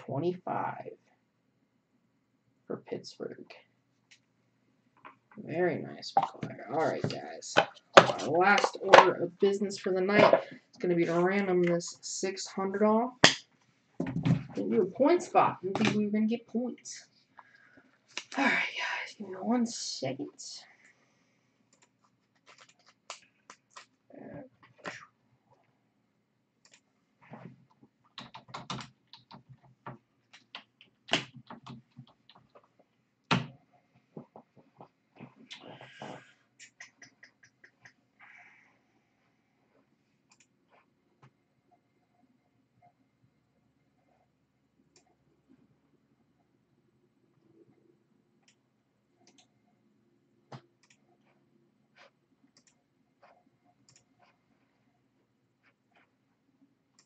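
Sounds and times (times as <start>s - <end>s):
objects being handled clicking: 21.8s - 24.0s.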